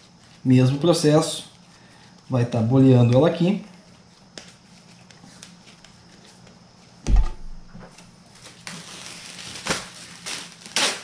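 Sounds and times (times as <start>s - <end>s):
dough thudding on counter: 7.1s - 7.9s
plastic bag rustling: 7.5s - 10.8s.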